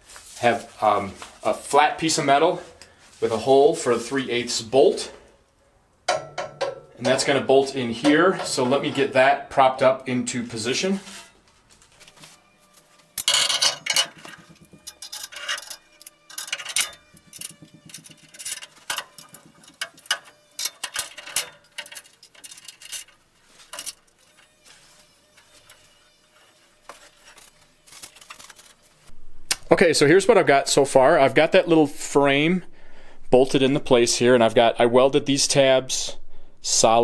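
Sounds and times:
metal clinks knocks and scrapes: 0:13.1 - 0:28.7.

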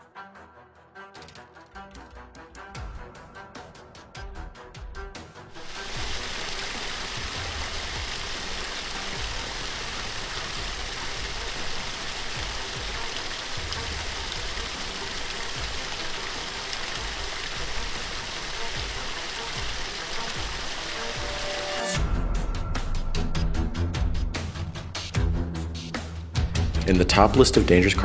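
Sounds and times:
water rushing and splashing: 0:05.6 - 0:22.0.

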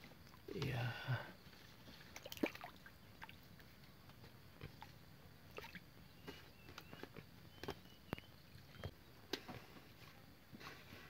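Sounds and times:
fish splashing at water surface: 0:02.0 - 0:03.4.

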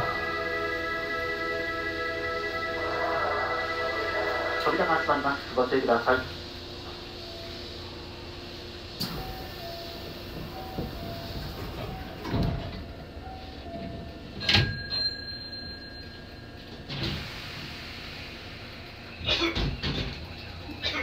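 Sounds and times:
train doors shutting with a knock: 0:09.0 - 0:15.2, 0:16.7 - 0:18.5, 0:19.2 - 0:20.9
two-note door signal: 0:09.0 - 0:16.1.

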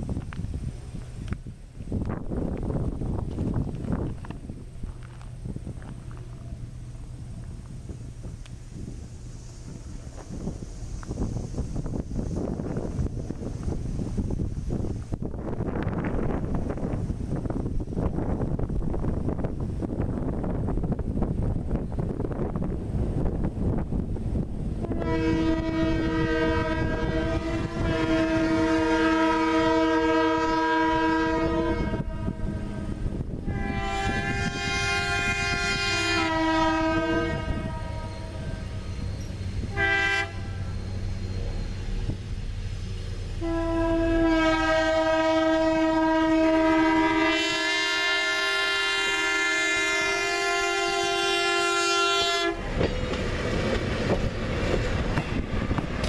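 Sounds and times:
train cars rolling past: 0:00.0 - 0:56.0
locomotive air horn blasts: 0:24.8 - 0:39.0, 0:39.6 - 0:41.0, 0:43.4 - 0:52.8.

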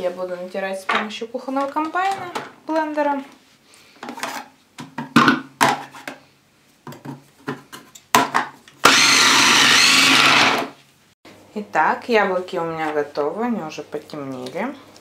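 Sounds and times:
food processor motor grating: 0:08.8 - 0:10.8.

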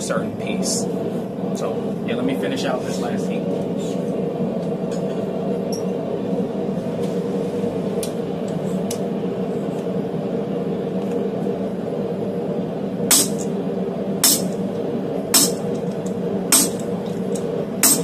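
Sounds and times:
shop equipment humming: 0:00.0 - 0:18.0
sharp hammer blow on metal: 0:13.1 - 0:13.5, 0:14.2 - 0:14.6, 0:15.3 - 0:15.6, 0:16.5 - 0:16.8.

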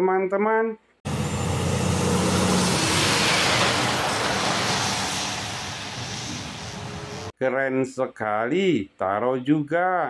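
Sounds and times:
truck engine hum: 0:01.1 - 0:07.3.

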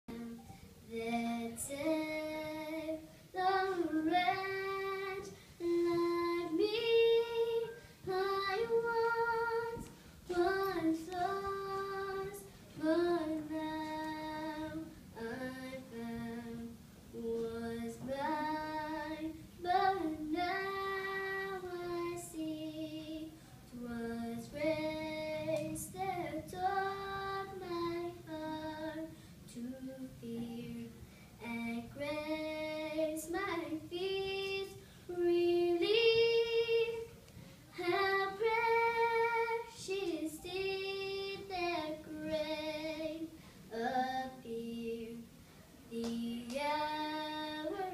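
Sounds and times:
girl singing unaccompanied: 0:00.1 - 0:47.9
girl breathing: 0:43.3 - 0:43.7.

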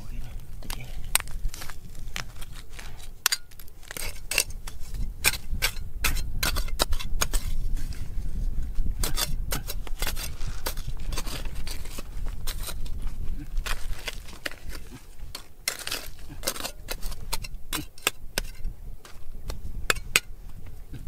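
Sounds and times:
metal tool scraping stone: 0:03.2 - 0:08.1, 0:09.0 - 0:20.4.

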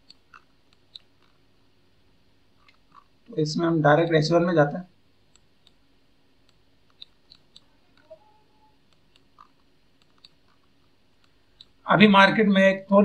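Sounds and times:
computer mouse clicks: 0:00.0 - 0:01.4, 0:05.3 - 0:05.8, 0:06.4 - 0:08.3, 0:08.9 - 0:11.8
mouse scroll-wheel ticks: 0:00.0 - 0:01.4, 0:02.6 - 0:03.1, 0:05.3 - 0:05.8, 0:06.4 - 0:08.3, 0:08.9 - 0:11.8.

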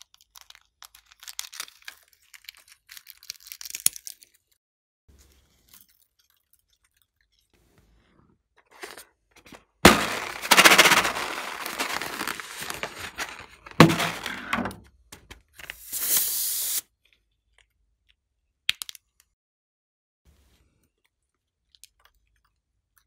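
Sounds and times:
balloon rubber crackling: 0:09.8 - 0:14.3
air hissing: 0:15.8 - 0:16.8.

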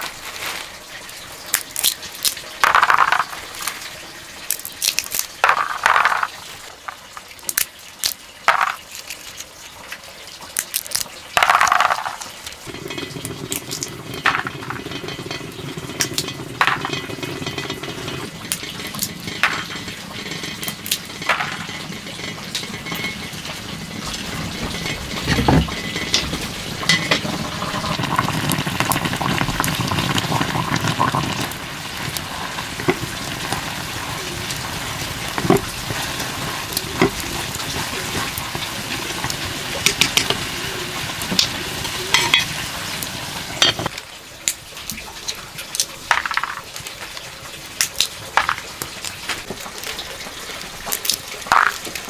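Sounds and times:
wood fire crackling: 0:00.0 - 0:52.0
water bubbling in a pot: 0:01.0 - 0:52.0
peanut shells cracking: 0:01.5 - 0:03.8, 0:04.5 - 0:09.6, 0:10.5 - 0:12.6, 0:20.6 - 0:21.6.

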